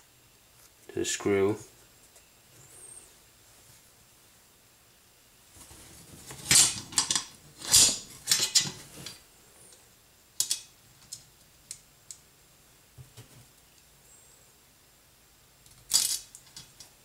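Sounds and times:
metal parts clattering: 6.4 - 8.8, 15.9 - 16.8.

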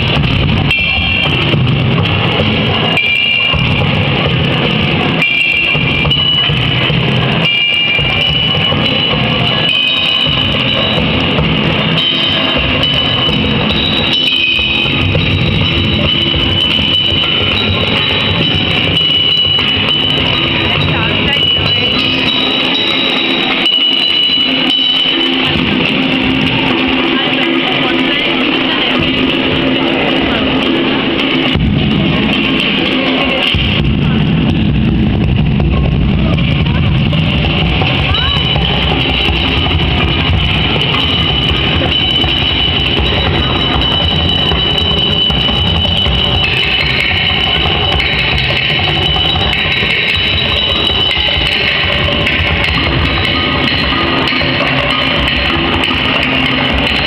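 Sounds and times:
percussion on pots and tins: 0.0 - 57.0
high ringing tone: 5.1 - 31.3.

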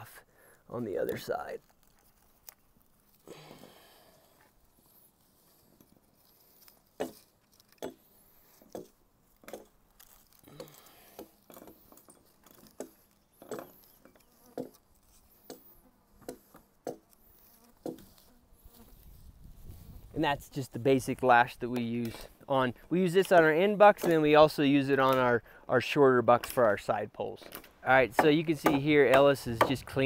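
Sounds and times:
tape rasping against wood: 4.3 - 20.0, 28.1 - 30.0
insects buzzing: 12.8 - 20.1.

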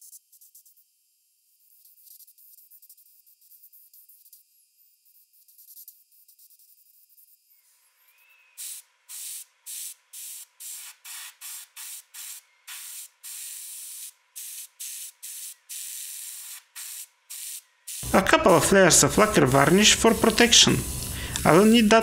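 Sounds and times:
airbrush spraying hisses: 8.6 - 22.0
faint high hiss: 18.0 - 22.0.

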